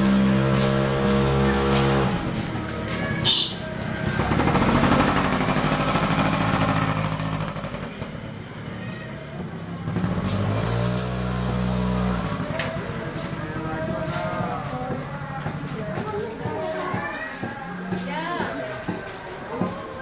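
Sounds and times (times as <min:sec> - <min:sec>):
small engine running: 0:04.0 - 0:08.2, 0:09.8 - 0:16.2.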